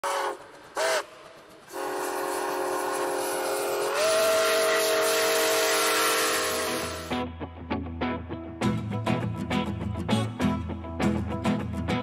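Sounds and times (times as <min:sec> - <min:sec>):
locomotive air horn: 0:00.0 - 0:07.2.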